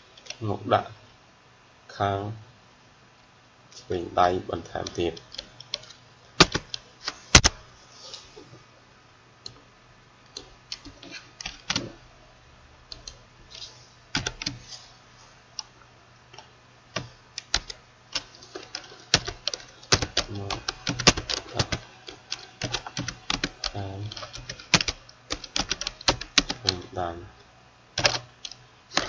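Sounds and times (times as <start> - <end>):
computer keyboard typing: 4.8 - 7.6, 10.3 - 12.0, 12.9 - 14.6, 17.0 - 26.9, 28.0 - 29.0.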